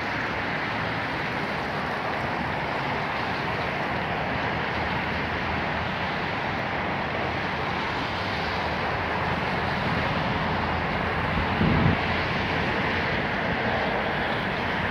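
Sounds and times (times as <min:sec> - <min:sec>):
distant traffic noise: 0:00.0 - 0:14.9.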